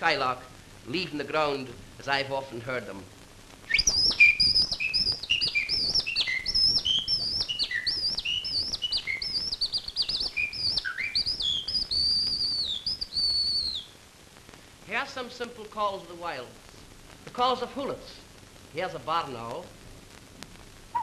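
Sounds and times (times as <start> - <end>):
man whistling birdsong imitation: 3.7 - 13.9.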